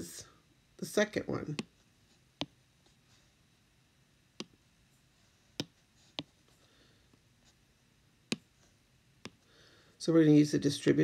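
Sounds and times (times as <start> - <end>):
taps on touchscreen: 4.4 - 4.6, 5.6 - 6.3.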